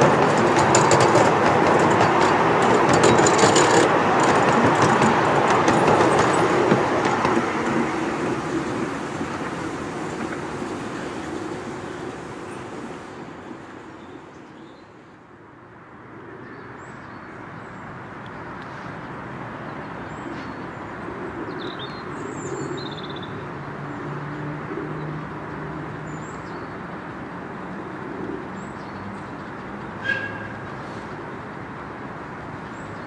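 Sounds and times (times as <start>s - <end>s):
miniature steam locomotive: 0.0s - 14.3s
steady outdoor rumble: 0.0s - 33.0s.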